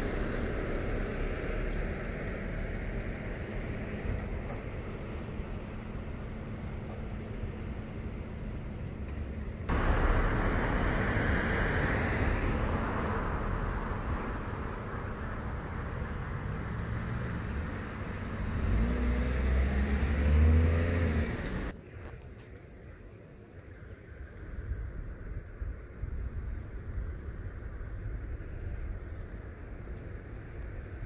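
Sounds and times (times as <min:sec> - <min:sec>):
road traffic rush: 0:00.0 - 0:31.0
car engine passing: 0:09.7 - 0:21.7.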